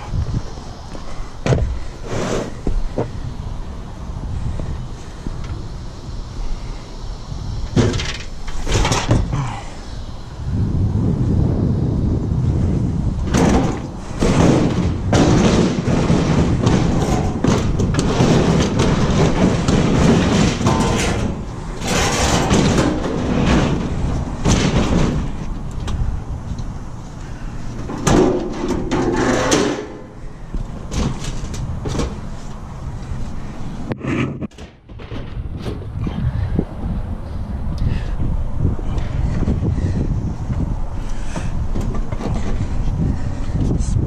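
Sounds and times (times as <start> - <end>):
heavy appliance knocks and scraping: 1.4 - 3.2, 7.7 - 9.5, 13.2 - 25.5, 27.8 - 30.1, 30.8 - 32.3, 41.3 - 43.2.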